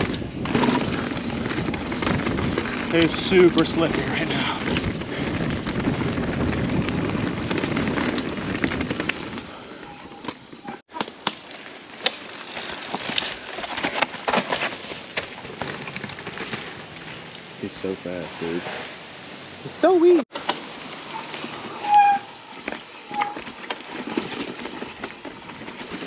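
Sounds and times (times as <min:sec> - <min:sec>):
bike clattering and rattling: 0:00.0 - 0:17.3, 0:21.3 - 0:26.0
bike tyre noise: 0:00.0 - 0:17.6, 0:20.8 - 0:26.0
wind on microphone: 0:03.8 - 0:09.2.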